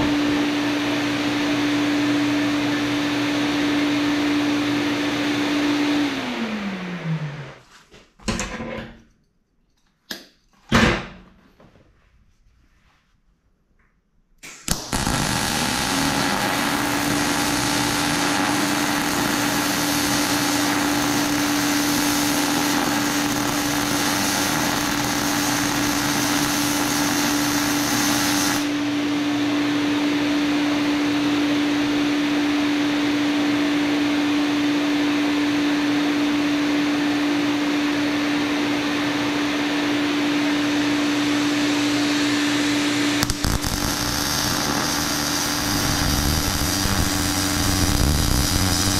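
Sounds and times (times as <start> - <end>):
electric arc welding crackling: 14.4 - 28.8, 43.1 - 48.9
fume extractor fan hum: 35.9 - 48.9.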